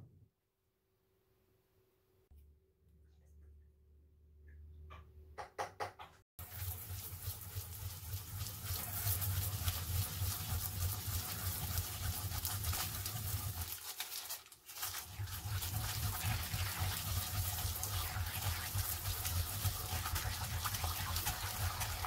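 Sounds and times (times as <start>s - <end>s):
yam grated in ridged mortar: 6.4s - 22.0s.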